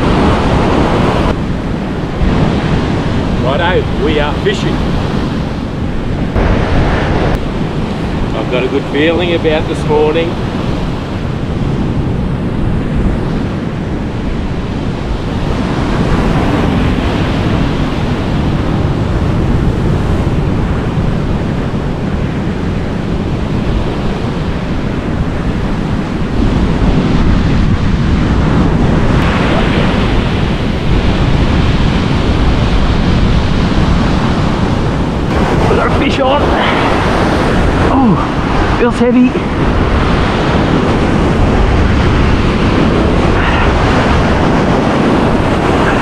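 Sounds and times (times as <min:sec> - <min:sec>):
surf washing: 0:00.0 - 0:46.0
wind buffeting microphone: 0:00.0 - 0:46.0.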